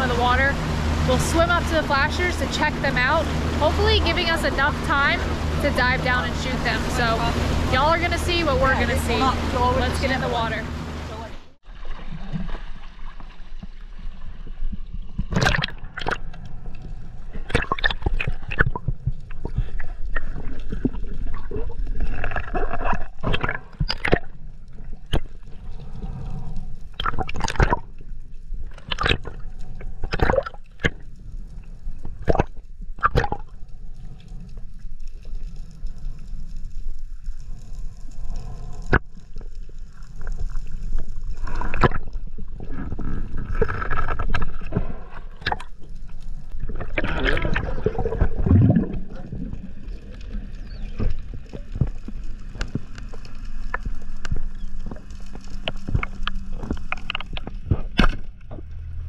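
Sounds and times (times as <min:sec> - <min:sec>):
steady low rumble: 0:00.0 - 0:59.0
water sloshing and gurgling: 0:00.0 - 0:59.0
sharp clicks and pops: 0:32.0 - 0:33.6, 0:50.1 - 0:58.8.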